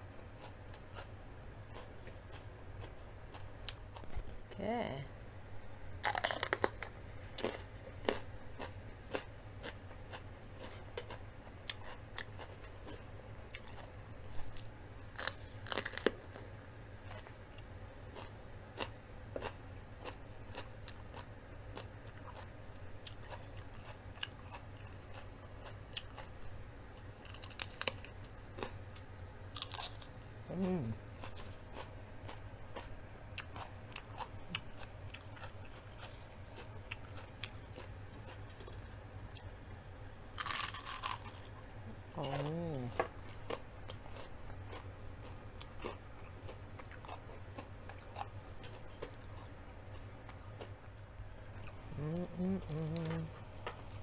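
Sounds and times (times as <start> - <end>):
crunching raw vegetable: 6.0 - 21.2, 27.2 - 28.8, 40.4 - 48.4.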